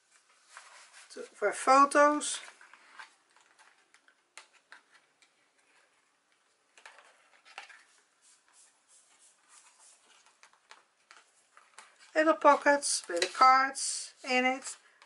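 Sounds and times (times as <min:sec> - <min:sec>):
cardstock rustling: 0:00.1 - 0:14.8
soft paper clicks: 0:10.0 - 0:12.1.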